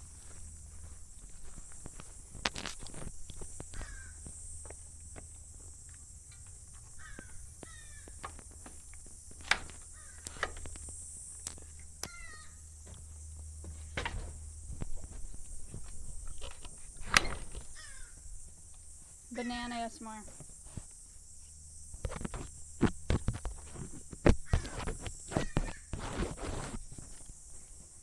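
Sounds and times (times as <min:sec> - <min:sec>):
footsteps: 0:00.0 - 0:11.8, 0:12.8 - 0:21.0
insects buzzing: 0:00.0 - 0:28.0.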